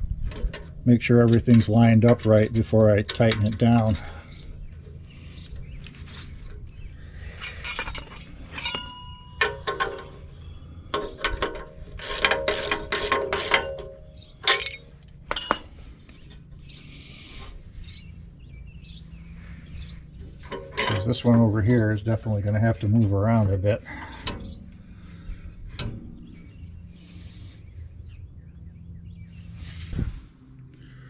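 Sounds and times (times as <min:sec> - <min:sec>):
metal bolts and wrench clinking: 0:00.2 - 0:04.1, 0:07.3 - 0:10.3, 0:10.9 - 0:15.8, 0:20.4 - 0:21.8.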